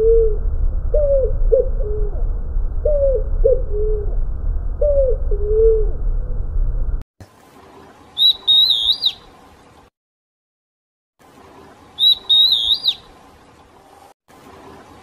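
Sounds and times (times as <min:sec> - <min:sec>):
low rumble: 0:00.0 - 0:07.0
bird whistling song: 0:08.2 - 0:09.3, 0:12.0 - 0:13.1.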